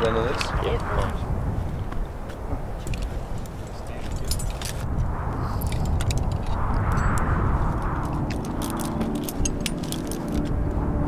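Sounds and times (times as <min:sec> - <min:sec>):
gusty wind buffeting microphone: 0:00.0 - 0:11.0
clicks and clinks of gear: 0:02.8 - 0:04.8, 0:08.0 - 0:10.6.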